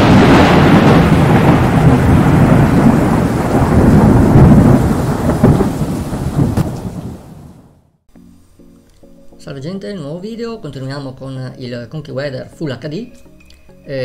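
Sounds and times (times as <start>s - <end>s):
rumbling thunder: 0.0s - 7.9s.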